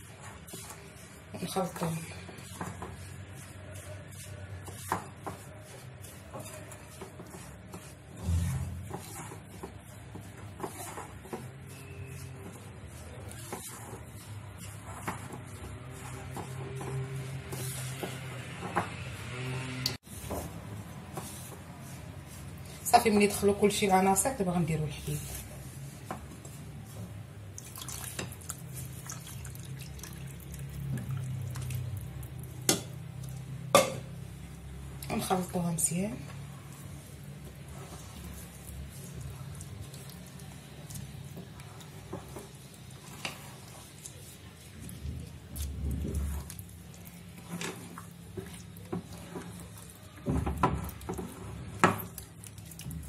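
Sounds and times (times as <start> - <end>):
spatula stirring batter: 0.0 - 53.0
milk pouring and splashing: 27.5 - 33.4, 37.0 - 53.0.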